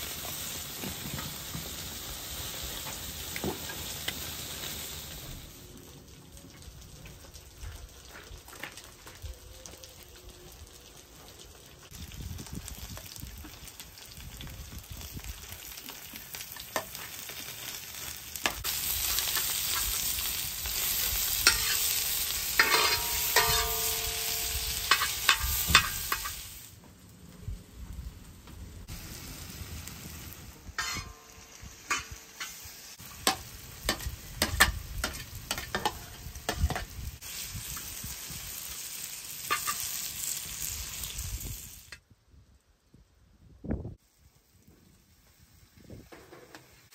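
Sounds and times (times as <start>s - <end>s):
food sizzling in pan: 0.0s - 6.1s, 10.6s - 26.8s, 28.8s - 42.0s.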